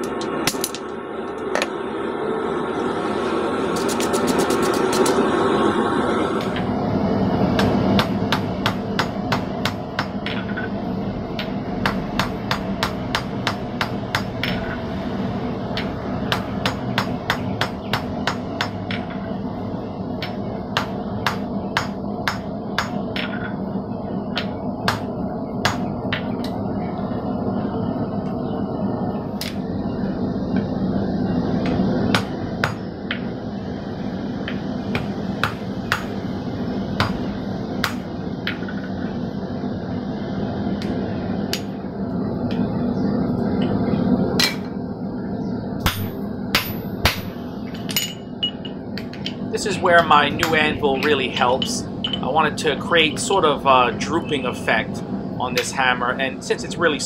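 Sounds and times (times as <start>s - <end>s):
hammer striking hot steel: 7.5s - 10.7s, 11.3s - 14.8s, 15.7s - 19.3s, 20.2s - 23.5s, 24.3s - 26.2s, 31.6s - 33.3s, 34.4s - 36.2s, 37.0s - 39.0s, 40.8s - 41.8s, 44.4s - 44.7s, 45.8s - 49.4s, 50.0s - 52.3s.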